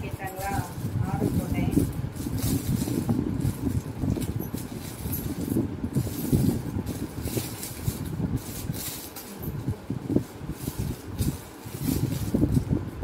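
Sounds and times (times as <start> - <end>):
low uneven rumble: 0.0 - 13.0.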